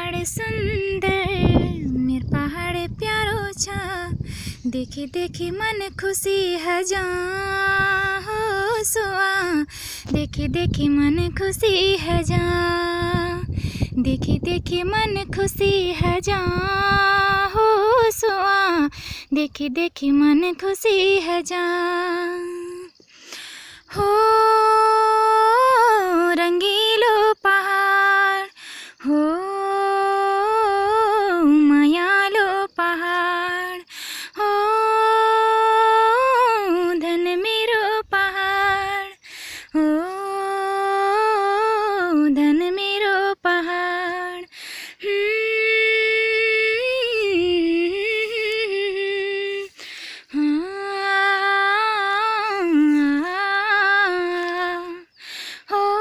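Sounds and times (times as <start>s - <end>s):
woman humming a melody: 23.9s - 56.0s.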